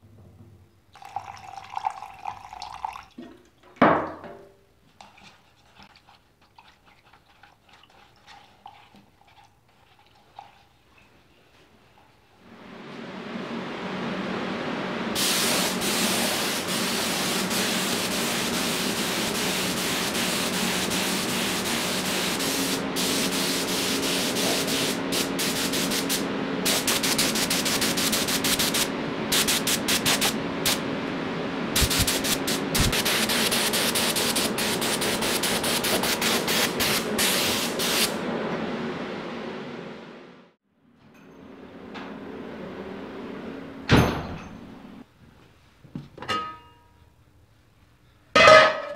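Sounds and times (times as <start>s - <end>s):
spray gun hissing: 15.1s - 30.8s, 31.8s - 38.2s.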